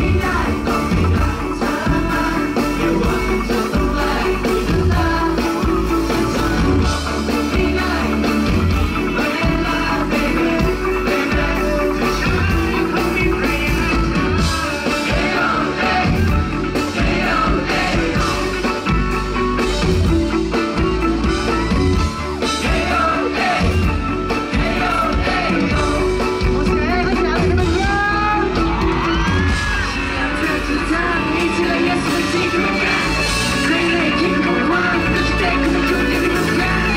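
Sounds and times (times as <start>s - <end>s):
men singing into microphones: 0.0s - 18.7s, 22.5s - 26.3s, 30.0s - 36.9s
pop song played by band: 0.0s - 36.9s
fans yelling and screaming: 21.4s - 36.9s.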